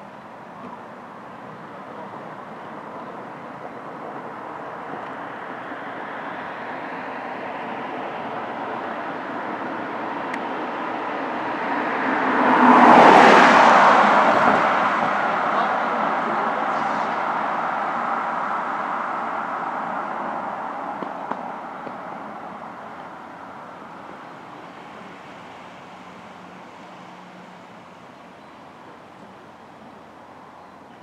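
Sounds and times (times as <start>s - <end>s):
vehicle passing: 4.7s - 30.6s.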